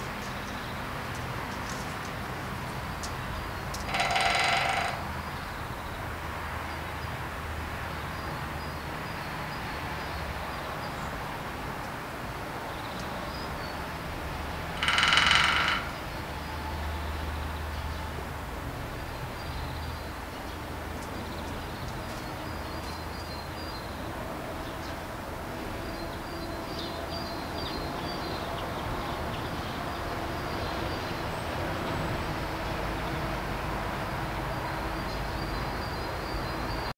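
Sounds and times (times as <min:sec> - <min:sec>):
woodpecker drumming on metal: 0:03.7 - 0:05.3, 0:14.7 - 0:16.2.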